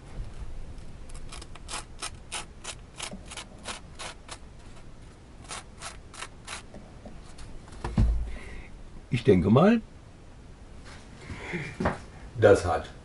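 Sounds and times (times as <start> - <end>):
fingers rasping on toast crust: 1.0 - 6.8.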